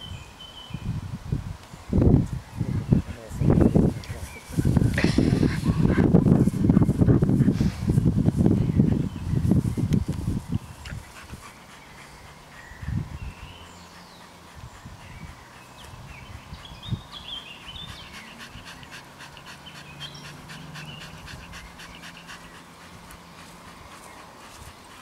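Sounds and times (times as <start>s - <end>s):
dog panting: 4.2s - 8.0s, 10.9s - 25.0s.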